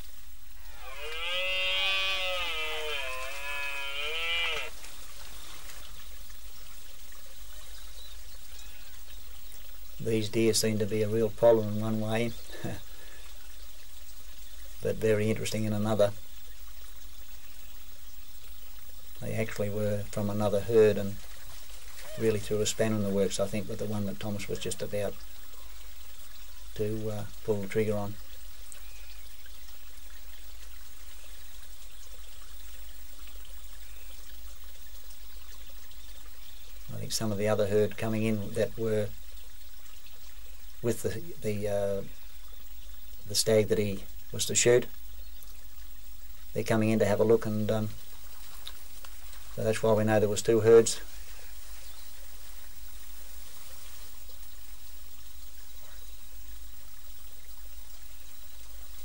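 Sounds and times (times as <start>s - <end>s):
faint high hiss: 0.0s - 59.0s.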